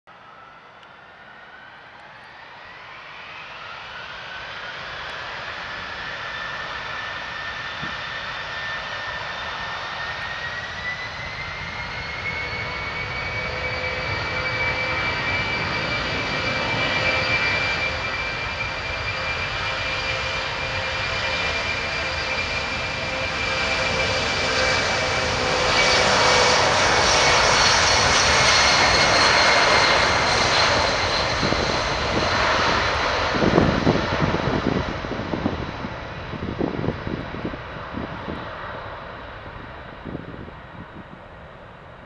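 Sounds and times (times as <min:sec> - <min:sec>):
jet engine whine: 0:00.1 - 0:42.0
jet rumble: 0:13.7 - 0:42.0.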